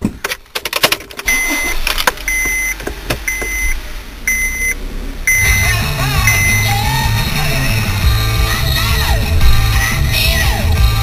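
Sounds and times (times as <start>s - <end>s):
clicks and knocks in car: 0.0s - 3.6s
car warning chime: 1.2s - 7.1s
low steady rumble: 1.3s - 11.0s.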